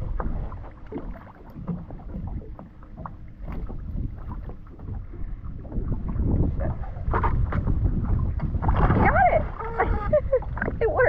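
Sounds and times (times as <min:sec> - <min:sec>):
small water splashes: 0:00.0 - 0:11.0
wind buffeting microphone: 0:00.0 - 0:11.0.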